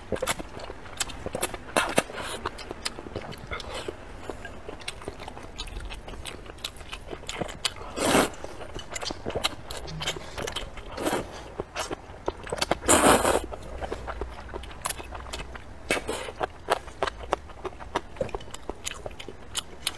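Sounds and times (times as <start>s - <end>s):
wet chewing: 0.0s - 19.9s
slurping noodles: 7.9s - 8.4s, 12.8s - 13.4s.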